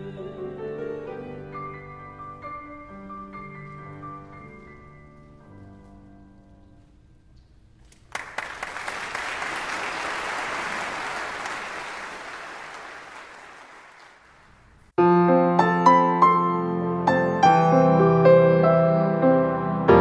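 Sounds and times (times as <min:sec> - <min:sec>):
piano playing: 0:00.0 - 0:07.0, 0:15.0 - 0:20.0
audience applauding: 0:07.9 - 0:14.8.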